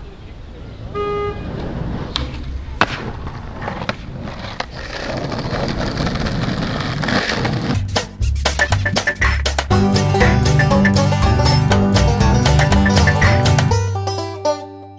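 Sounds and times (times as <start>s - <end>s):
skateboard wheels rolling on asphalt: 0.1s - 8.0s
skateboard clacks: 2.1s - 9.7s.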